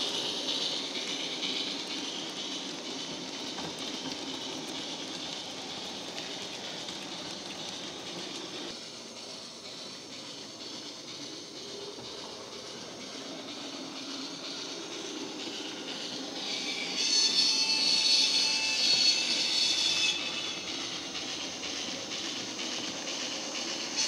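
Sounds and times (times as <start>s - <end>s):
model wagons running on track: 0.0s - 16.4s
model steam locomotive sound: 0.0s - 24.0s
steam hiss: 0.0s - 24.0s.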